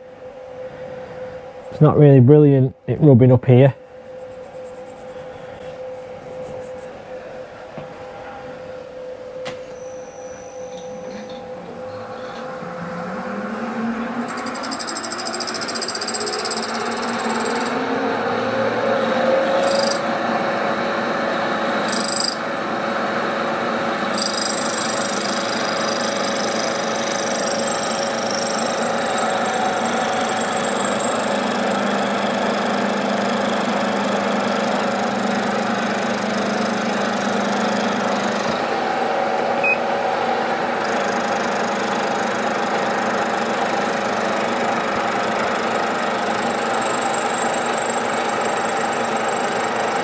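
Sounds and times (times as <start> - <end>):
milling machine cutting metal: 11.1 - 50.0.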